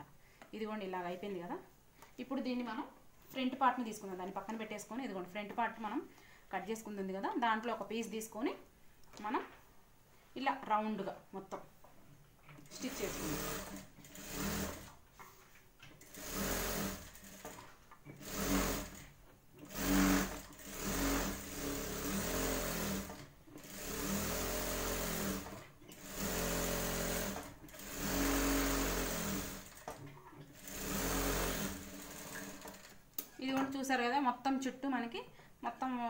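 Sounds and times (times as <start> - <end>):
sewing machine stitching: 12.5 - 15.0, 15.9 - 33.0.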